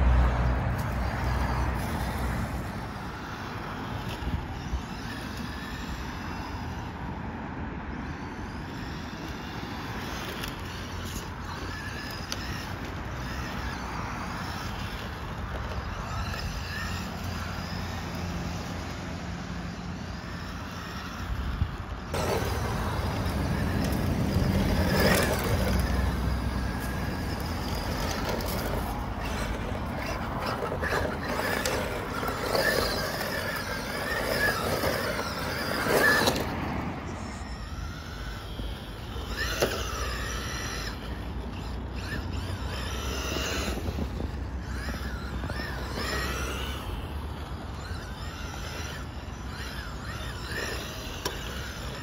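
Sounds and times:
toy car electric motor whining: 0:00.0 - 0:52.0
tyre noise: 0:22.1 - 0:47.1.

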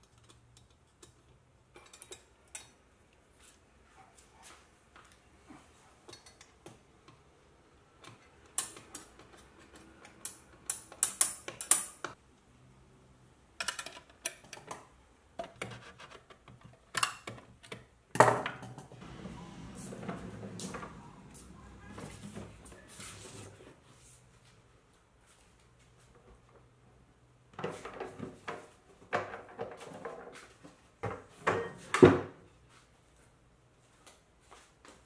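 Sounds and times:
low scuffing rumble: 0:19.0 - 0:24.6.

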